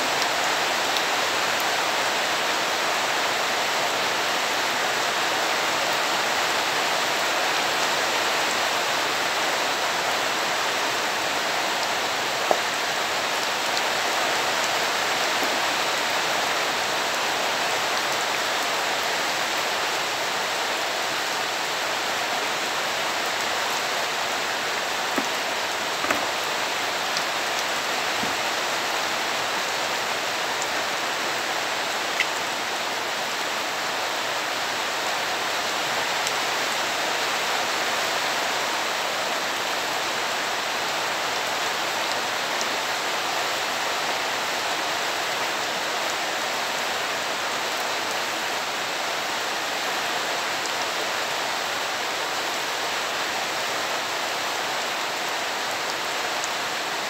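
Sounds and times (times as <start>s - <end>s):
steady rain falling: 0.0s - 57.0s
light rain taps: 11.8s - 14.0s, 24.6s - 28.9s.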